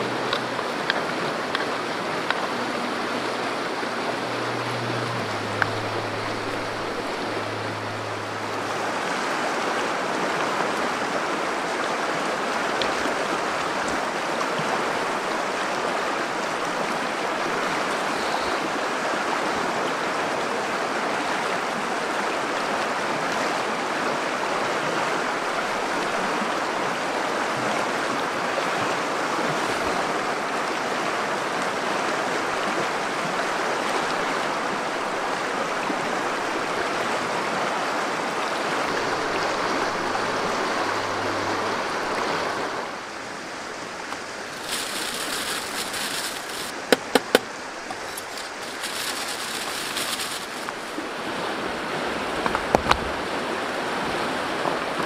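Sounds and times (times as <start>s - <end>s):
river flowing over rocks: 0.0s - 55.0s.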